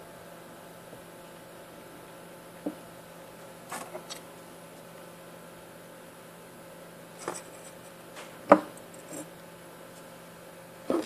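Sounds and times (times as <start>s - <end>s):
faint steady hum: 0.0s - 11.0s
clicks and knocks of handled board: 8.2s - 8.8s.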